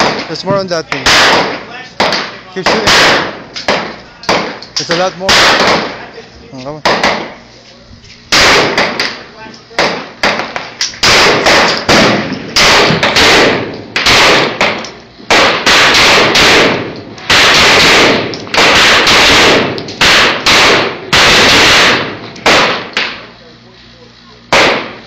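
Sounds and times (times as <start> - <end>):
pistol shots: 0.0 - 6.0, 6.8 - 7.4, 8.3 - 9.2, 9.8 - 23.3, 24.5 - 25.0.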